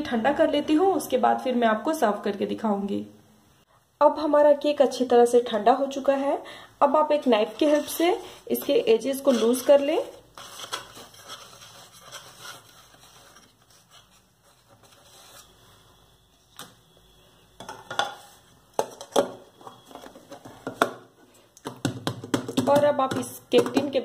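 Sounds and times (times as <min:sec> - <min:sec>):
knife scraping metal tin: 0:07.6 - 0:13.0.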